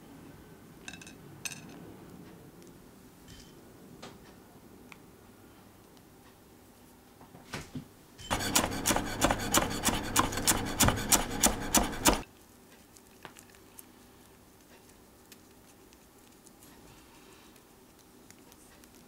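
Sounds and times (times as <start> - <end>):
knife chopping on wooden board: 8.3 - 12.2.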